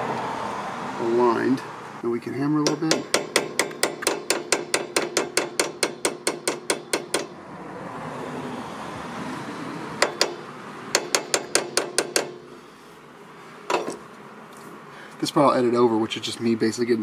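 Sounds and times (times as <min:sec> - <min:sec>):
hammer tapping metal bolt: 0:02.6 - 0:07.3, 0:10.0 - 0:10.4, 0:11.0 - 0:12.4, 0:13.7 - 0:14.0.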